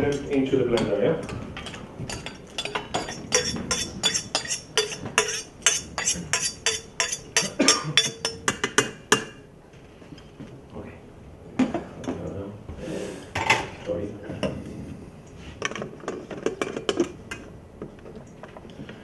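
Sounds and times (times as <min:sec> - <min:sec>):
metal utensil clinking in a saucepan: 0:01.6 - 0:09.3.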